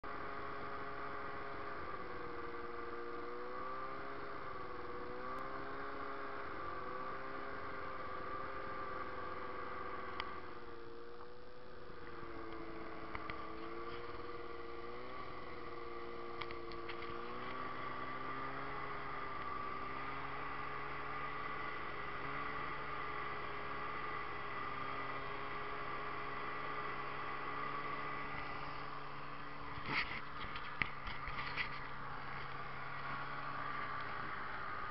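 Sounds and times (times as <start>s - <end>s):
snowmobile engine running: 0.0s - 34.9s.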